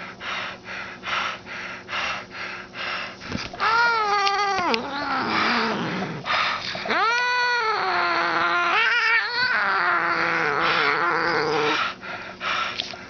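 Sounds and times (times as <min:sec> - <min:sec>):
cat yowling: 0:03.6 - 0:06.0, 0:06.8 - 0:11.8.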